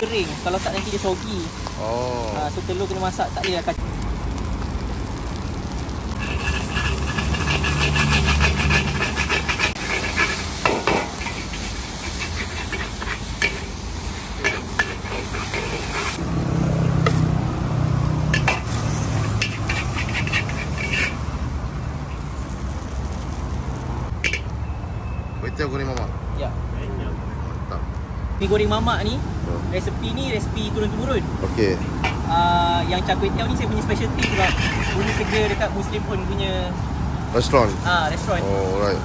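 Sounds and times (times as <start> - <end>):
noodles sizzling in a wok: 0.0 - 24.5, 33.6 - 36.2
metal spatula scraping a wok: 6.1 - 16.2, 18.3 - 21.5, 34.1 - 35.8.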